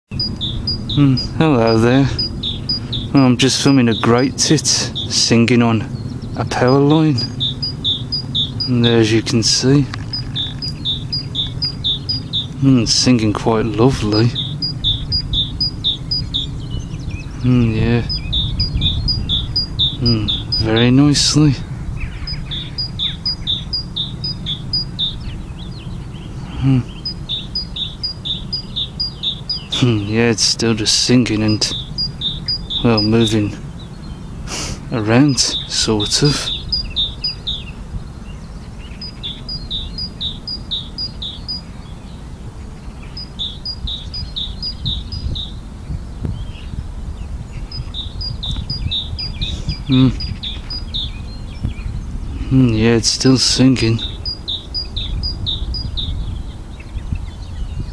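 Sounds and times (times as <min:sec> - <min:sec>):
bird chirps: 0:00.0 - 0:57.9
bird singing two-note song: 0:00.1 - 0:21.4, 0:22.0 - 0:34.2, 0:35.0 - 0:37.8, 0:38.8 - 0:42.1, 0:42.8 - 0:45.6, 0:47.6 - 0:51.8, 0:53.0 - 0:56.2
low rumble: 0:00.1 - 0:30.8.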